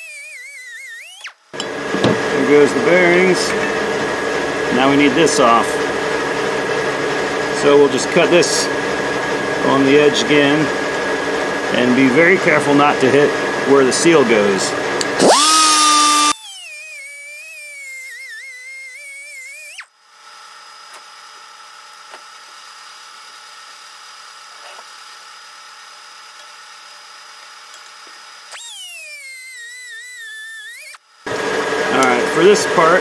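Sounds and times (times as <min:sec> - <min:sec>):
cutoff wheel tool whining: 0:00.0 - 0:06.0, 0:13.8 - 0:22.3, 0:27.4 - 0:33.0.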